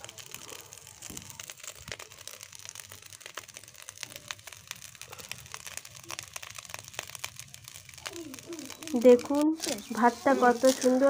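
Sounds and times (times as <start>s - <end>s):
rice sizzling and popping in a pan: 0.0s - 11.0s.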